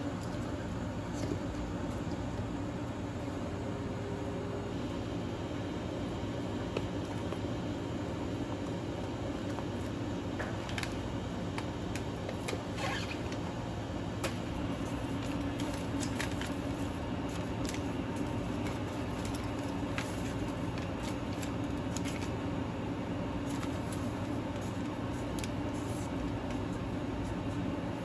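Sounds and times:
low machine hum: 0:00.0 - 0:28.0
paper rustling: 0:14.6 - 0:22.4, 0:23.4 - 0:27.7.

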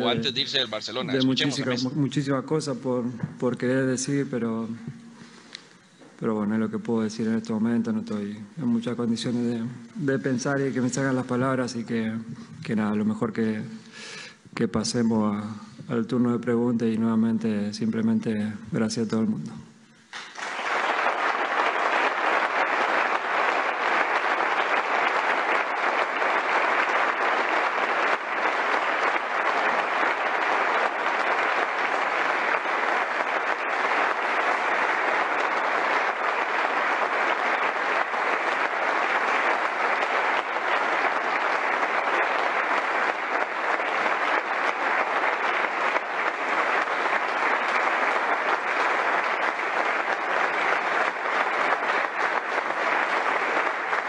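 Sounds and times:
crowd applauding: 0:00.0 - 0:02.0, 0:20.1 - 0:54.0.

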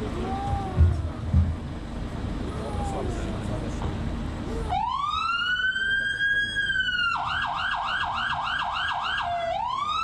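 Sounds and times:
fire engine siren: 0:04.6 - 0:10.0.

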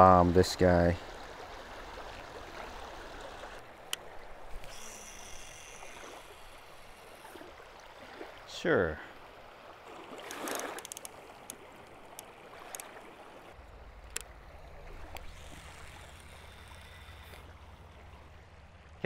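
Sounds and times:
small waves lapping on rocks: 0:00.0 - 0:19.0
faint clicks: 0:03.9 - 0:07.3, 0:10.2 - 0:13.0, 0:14.0 - 0:14.4, 0:15.1 - 0:18.0.

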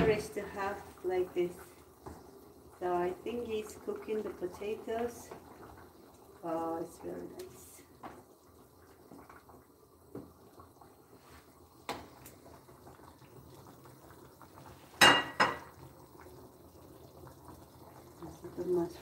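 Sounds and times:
metal pot clanking: 0:15.0 - 0:15.7.

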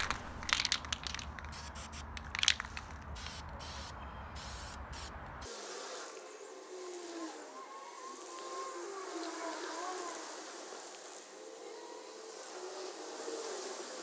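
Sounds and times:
aerosol can rattle: 0:00.0 - 0:03.4
aerosol can spraying: 0:09.6 - 0:11.5.

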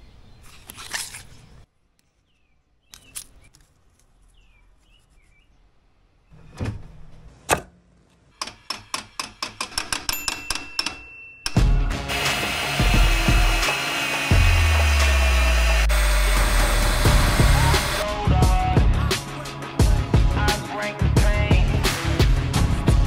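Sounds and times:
faint bird chirps: 0:01.4 - 0:06.4.

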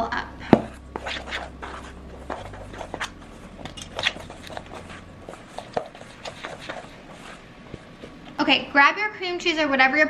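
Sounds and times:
dough stirred in a bowl: 0:00.6 - 0:08.5.

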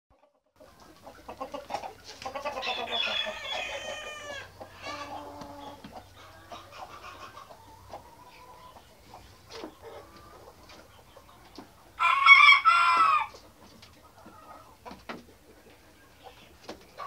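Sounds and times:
chickens clucking: 0:00.1 - 0:17.0
chicken long drawn-out call: 0:02.3 - 0:08.7, 0:12.0 - 0:13.4.

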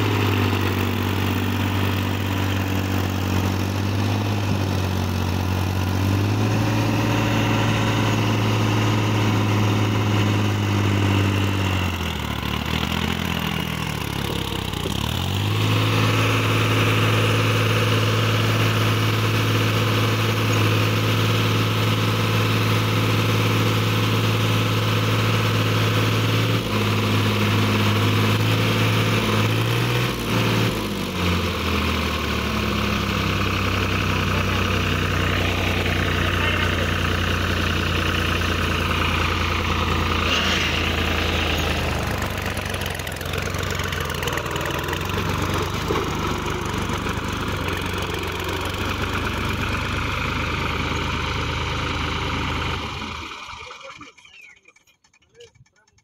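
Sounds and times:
tractor diesel engine under load: 0:00.0 - 0:56.0.

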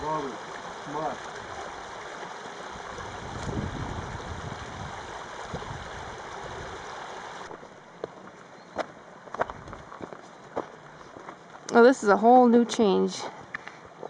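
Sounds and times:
creek water running over rocks: 0:00.0 - 0:14.0
footsteps crunching on stones: 0:07.5 - 0:11.7.

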